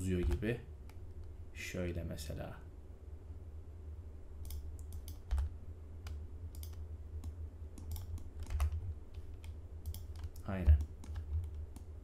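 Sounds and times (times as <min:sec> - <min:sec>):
keyboard and mouse clicks: 0:00.2 - 0:01.3, 0:04.4 - 0:12.0.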